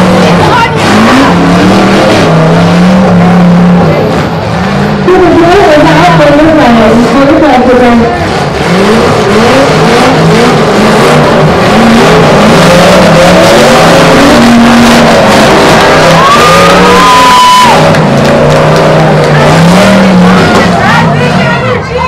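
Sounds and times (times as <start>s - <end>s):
car engines revving: 0.0s - 22.0s
high squeal: 12.7s - 18.0s.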